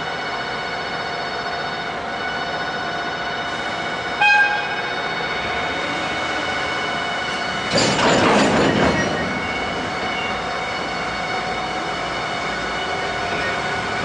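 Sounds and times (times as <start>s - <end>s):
locomotive engine running: 0.0s - 14.0s
train wheels squealing: 0.7s - 14.0s
loud rushing clattering: 7.6s - 10.0s.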